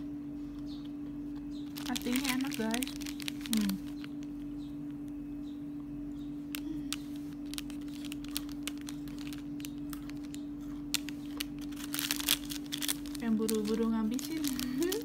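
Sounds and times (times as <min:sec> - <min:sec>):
steady low hum: 0:00.0 - 0:15.0
biscuit stick crunching: 0:00.5 - 0:05.2, 0:06.4 - 0:15.0.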